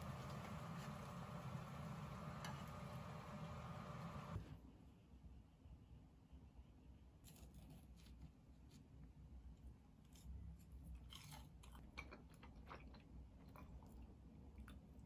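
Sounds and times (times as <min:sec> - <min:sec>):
chewing food: 0:10.9 - 0:15.0.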